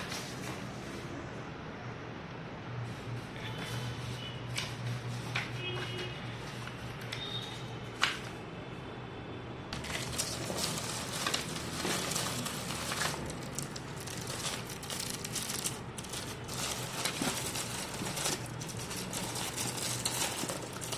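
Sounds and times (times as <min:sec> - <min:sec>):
plastic wrappers crinkling: 0:09.8 - 0:20.9.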